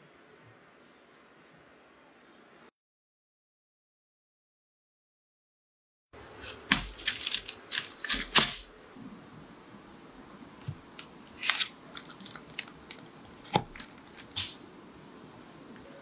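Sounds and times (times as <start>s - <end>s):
paper crinkling: 6.2s - 8.8s, 10.6s - 14.6s.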